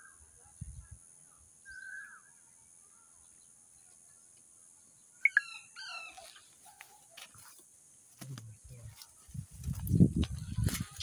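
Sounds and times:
parrot chirping: 0:05.2 - 0:06.1.

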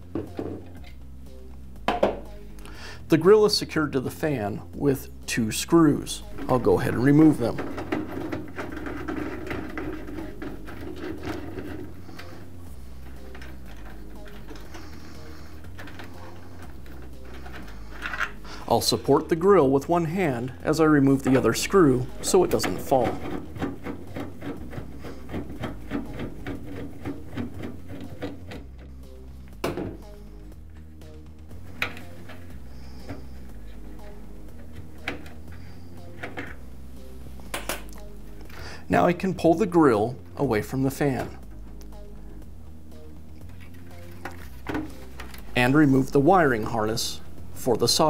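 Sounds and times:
screwdriver scraping and clicking: 0:06.2 - 0:19.4, 0:21.1 - 0:29.6, 0:31.6 - 0:36.6, 0:43.4 - 0:45.5.

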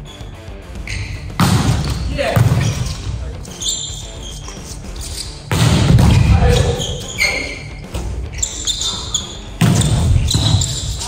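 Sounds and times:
sneakers squeaking on wooden court: 0:00.0 - 0:11.0
volleyball being struck: 0:01.0 - 0:03.2, 0:05.5 - 0:07.0, 0:09.6 - 0:10.8
players shouting: 0:05.3 - 0:11.0.

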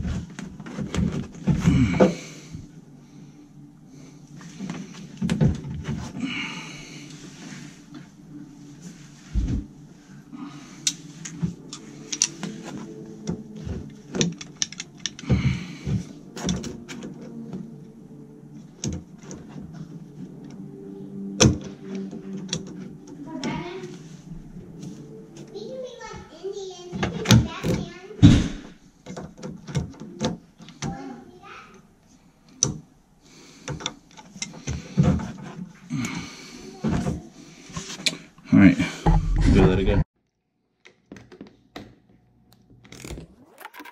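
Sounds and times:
low steady hum: 0:00.0 - 0:26.4
pliers clicking and scraping: 0:10.8 - 0:12.8.

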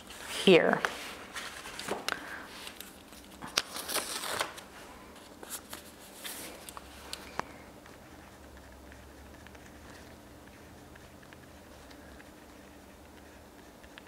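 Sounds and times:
paper rustling and crinkling: 0:00.0 - 0:08.0.

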